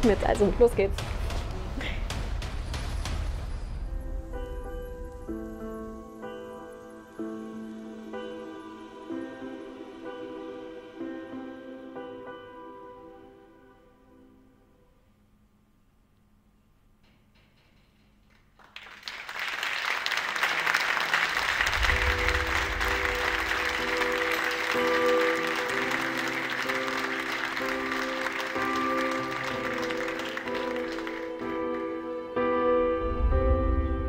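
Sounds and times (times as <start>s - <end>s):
audience applauding: 18.6s - 32.0s.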